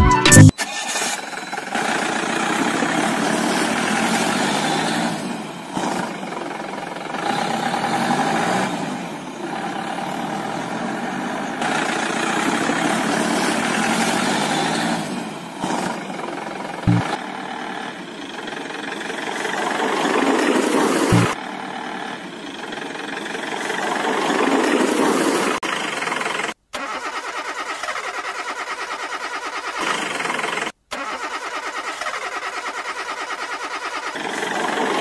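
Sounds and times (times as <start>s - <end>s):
vehicle engine revving: 7.0s - 16.1s, 16.8s - 17.9s, 21.0s - 22.2s.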